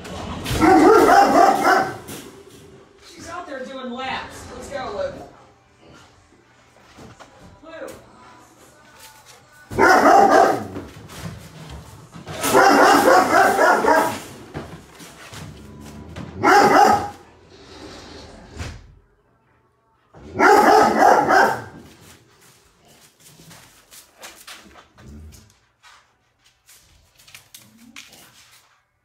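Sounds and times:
dog barking: 0.5s - 2.1s, 9.7s - 10.9s, 12.4s - 14.3s, 16.4s - 17.2s, 20.2s - 21.9s.

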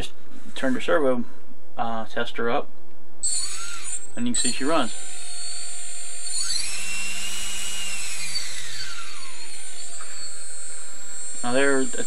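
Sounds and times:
electric motor whine: 3.3s - 12.0s.

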